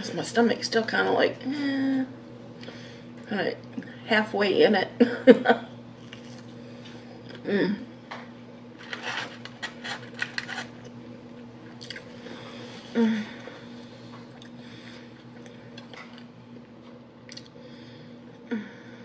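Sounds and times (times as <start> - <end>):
short hummed vocal sounds: 1.3 - 4.1, 5.0 - 8.1, 11.7 - 16.0, 17.2 - 19.0
crisp clicks and rustles: 8.8 - 10.9.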